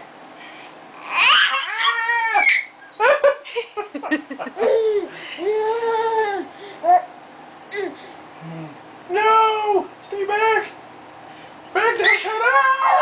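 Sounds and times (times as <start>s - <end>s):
baby laughing and squealing: 1.0s - 3.2s, 4.6s - 7.1s.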